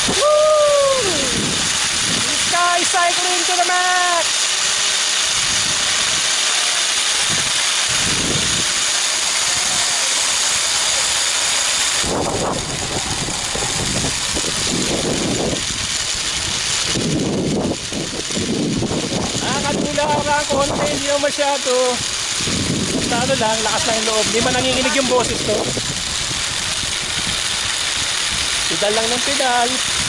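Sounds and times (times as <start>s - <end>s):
low wind buffeting gusts: 0.0s - 3.1s, 7.3s - 8.9s, 11.9s - 30.0s
wind hissing on microphone: 0.0s - 30.0s.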